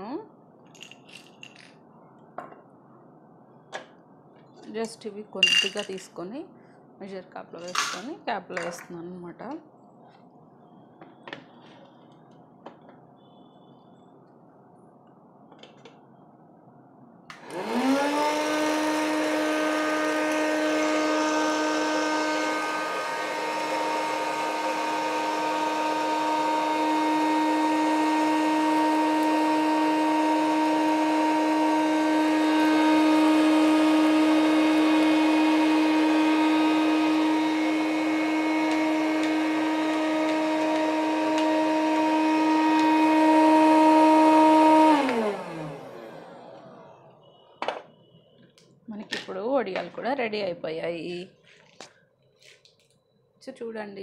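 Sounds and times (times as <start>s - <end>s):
popcorn maker fan whine: 10.0s - 14.9s, 15.5s - 48.4s.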